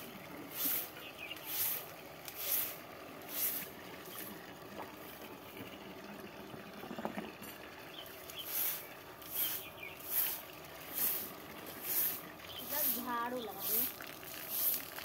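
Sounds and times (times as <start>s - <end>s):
broom sweeping bare earth: 0.0s - 4.3s, 8.3s - 15.0s.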